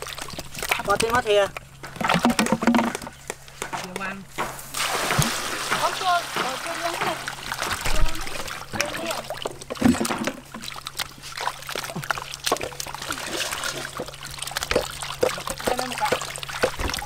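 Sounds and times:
water splashing and trickling: 0.0s - 17.0s
knocks in metal basin: 1.9s - 7.3s.

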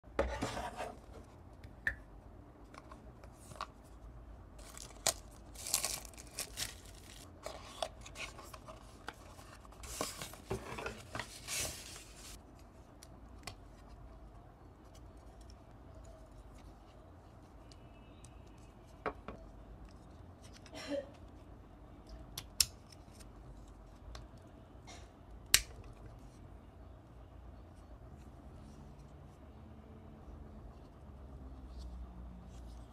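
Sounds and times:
paper packaging rustling: 4.6s - 12.4s.

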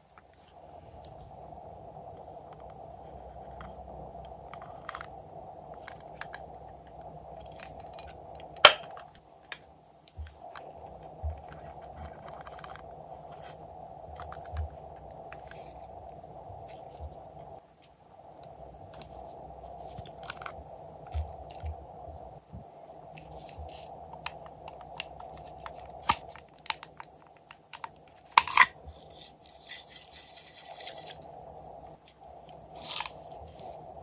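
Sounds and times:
steady background hum: 0.0s - 34.0s
plastic case snapping shut: 8.6s - 9.1s.

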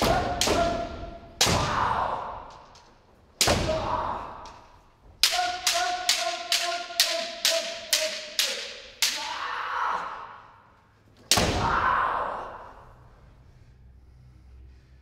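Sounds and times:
bamboo swords clacking: 0.0s - 9.6s
person shouting: 5.2s - 10.6s.

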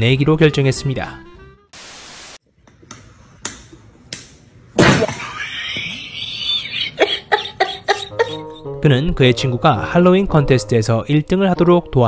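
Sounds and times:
static hiss: 1.8s - 2.4s.

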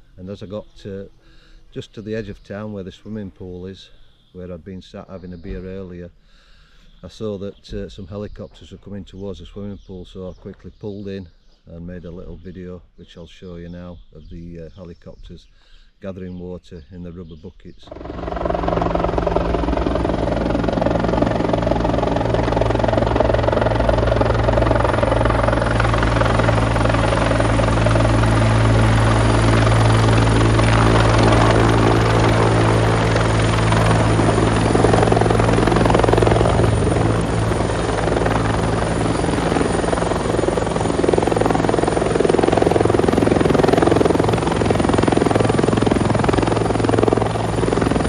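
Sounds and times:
helicopter rotor and engine drone: 17.9s - 48.0s.

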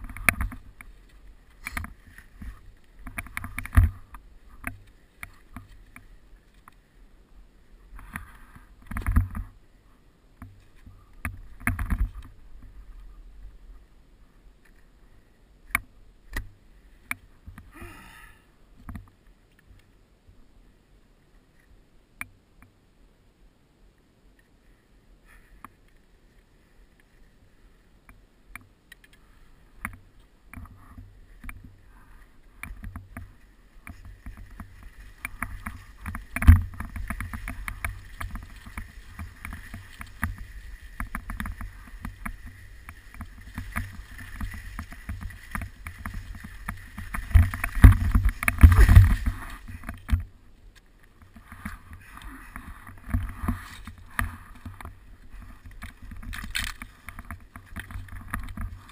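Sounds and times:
skis scraping over snow: 0.0s - 6.7s, 30.7s - 58.9s
sharp knocks and clicks: 32.6s - 50.3s.

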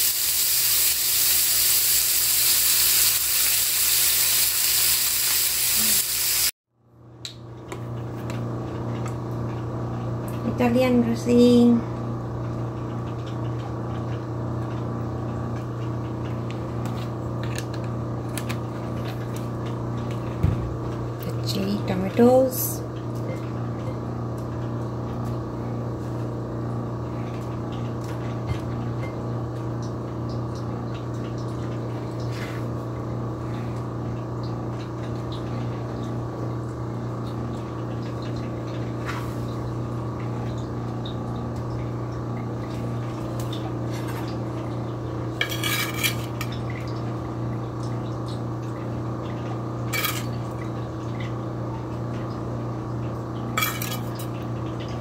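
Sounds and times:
appliance hum: 0.0s - 55.0s
kitchenware clinking: 45.4s - 46.6s, 49.9s - 50.4s, 53.6s - 54.3s.

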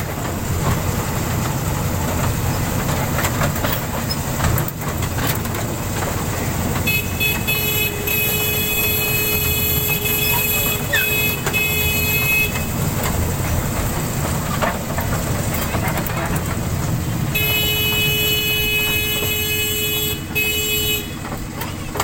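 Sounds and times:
toy train rumbling: 0.0s - 22.0s
steady horn tone: 6.8s - 12.8s, 17.3s - 21.2s.

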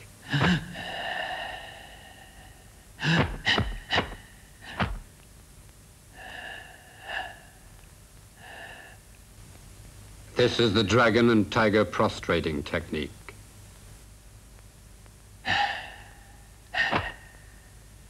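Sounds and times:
man breathing forcefully: 0.3s - 5.0s, 15.5s - 16.2s, 16.8s - 17.5s.

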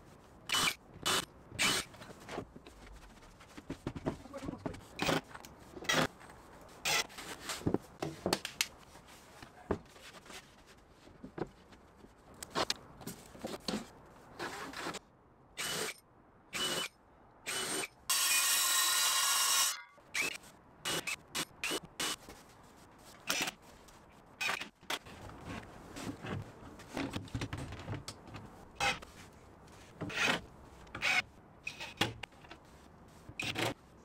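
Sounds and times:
cordless drill into plywood: 0.5s - 1.9s, 15.6s - 16.0s, 16.6s - 16.9s, 17.5s - 22.2s.

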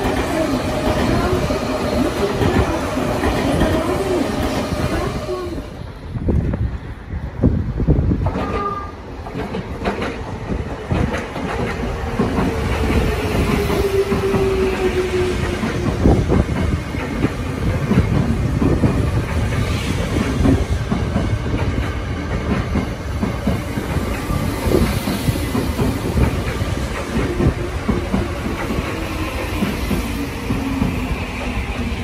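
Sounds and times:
train wheels clattering over rail joints: 8.1s - 31.7s.

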